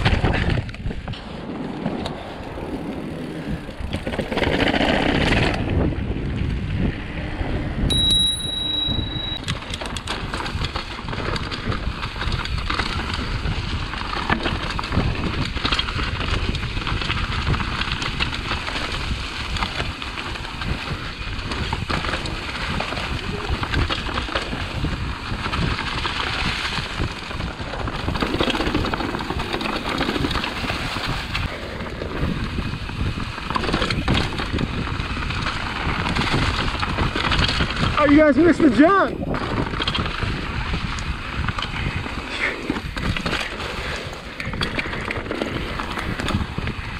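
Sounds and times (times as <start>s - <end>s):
bike chain and frame rattling: 0.0s - 7.0s, 7.9s - 46.9s
bike tyres on dirt and rock: 0.0s - 46.9s
brief high ringing tone: 7.9s - 9.7s.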